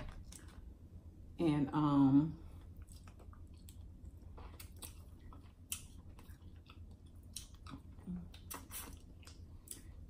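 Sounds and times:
wet smacking and sucking eating: 2.7s - 10.0s.

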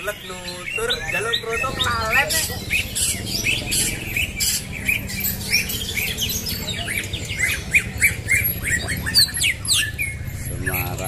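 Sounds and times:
songbirds chirping and twittering: 0.0s - 11.0s.

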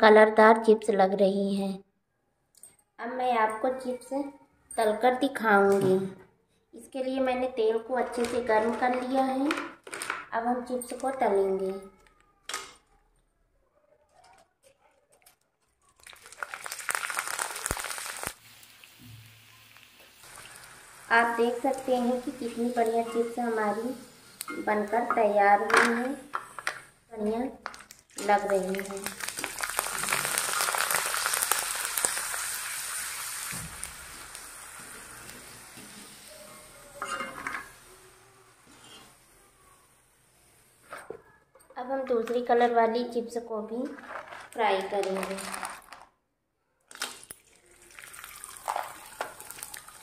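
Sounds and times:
chips sizzling in hot oil: 16.0s - 26.9s, 27.6s - 39.4s, 47.1s - 50.0s.

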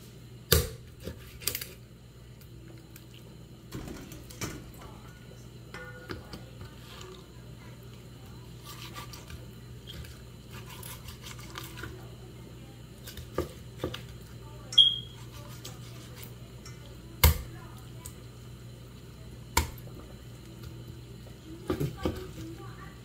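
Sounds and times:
knife cutting raw chicken: 8.6s - 11.9s, 15.1s - 16.3s.

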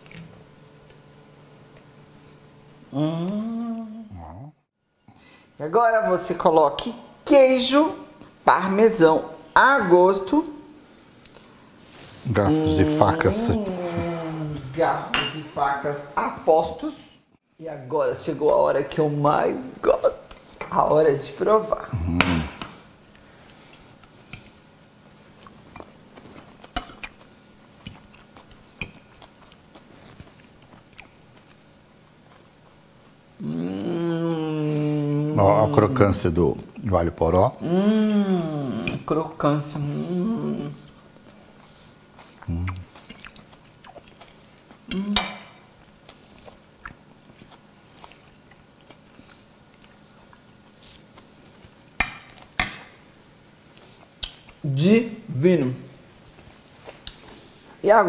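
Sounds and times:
voice humming: 2.9s - 4.6s, 12.3s - 14.7s, 33.4s - 36.2s, 37.6s - 39.0s, 39.8s - 40.9s, 42.4s - 42.9s, 44.9s - 45.4s
faint chewing: 22.7s - 33.2s, 40.7s - 52.6s, 56.2s - 57.7s
forks tapping on plates: 52.0s - 52.9s.

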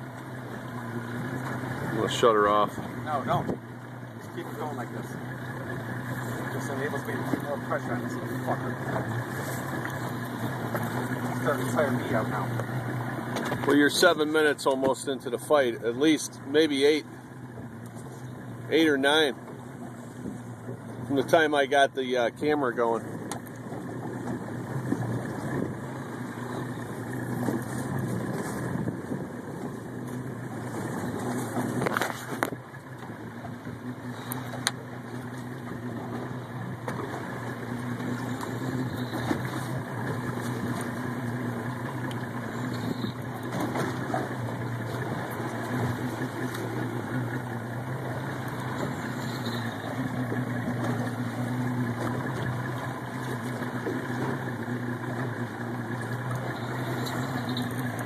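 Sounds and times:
boat engine idling: 0.0s - 58.0s
wind and water rushing: 0.0s - 58.0s.

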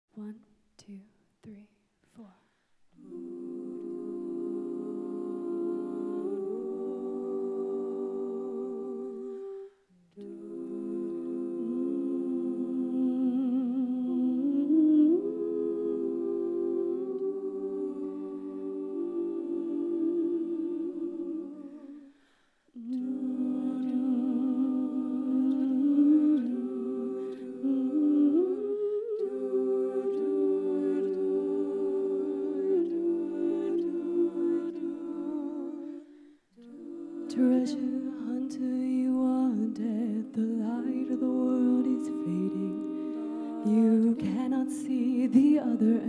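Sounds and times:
women singing in harmony: 2.9s - 46.0s
women humming chords: 22.8s - 46.0s.

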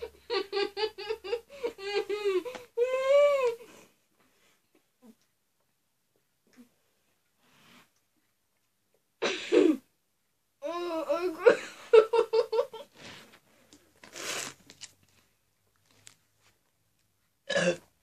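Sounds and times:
girl giggling: 0.0s - 3.5s, 10.7s - 12.9s.

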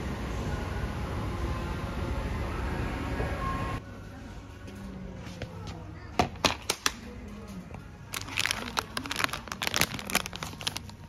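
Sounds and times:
background music: 0.0s - 11.0s
plastic bag crinkling: 8.1s - 11.0s.

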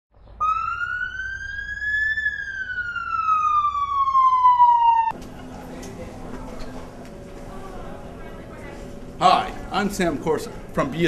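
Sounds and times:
siren rising and falling: 0.3s - 5.2s.

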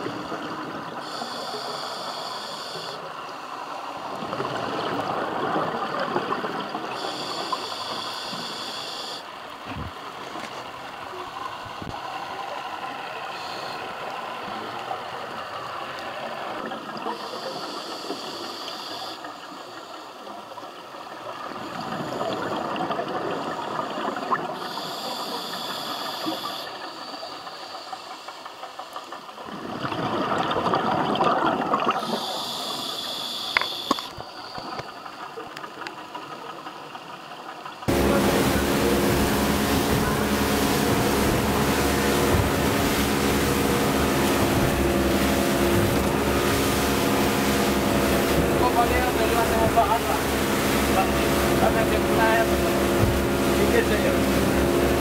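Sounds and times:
regulator air hiss: 0.0s - 4.0s, 6.9s - 9.4s, 17.1s - 20.2s, 24.6s - 28.9s, 32.0s - 35.1s
exhaled bubbles rushing: 4.0s - 7.2s, 29.3s - 32.2s, 37.8s - 55.0s.

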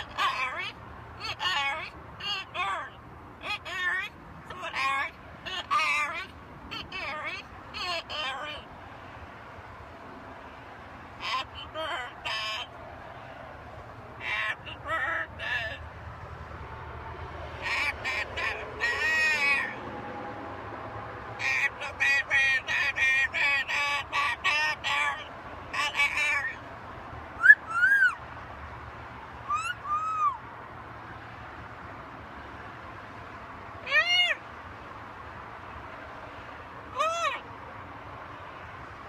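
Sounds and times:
parrot chattering and calling: 0.0s - 8.7s, 11.2s - 12.8s, 14.2s - 16.0s, 17.6s - 19.8s, 21.4s - 26.6s, 27.4s - 28.2s, 29.4s - 30.4s, 33.8s - 34.4s, 36.9s - 37.5s.

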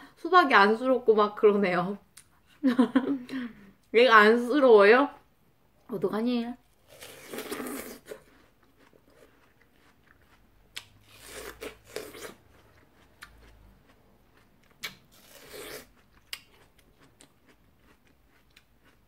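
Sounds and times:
watermelon crunching: 6.7s - 19.0s
crackling chewing: 6.8s - 19.0s.

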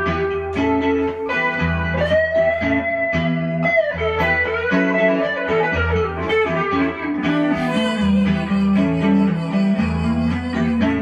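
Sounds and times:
electric guitar lead solo: 0.0s - 11.0s
low bass: 5.7s - 11.0s.

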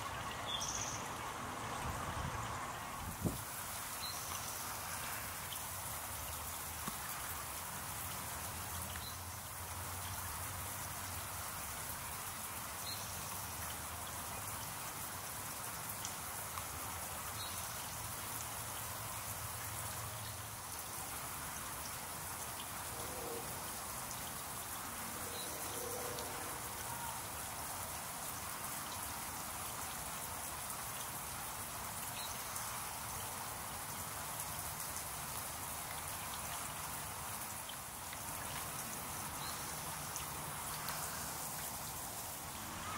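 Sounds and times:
garden fountain splashing: 0.0s - 42.9s.

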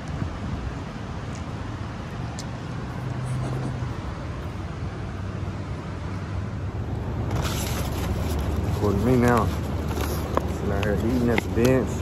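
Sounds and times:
low rumble of road traffic: 0.0s - 12.0s
vehicle engine hum: 0.0s - 12.0s.

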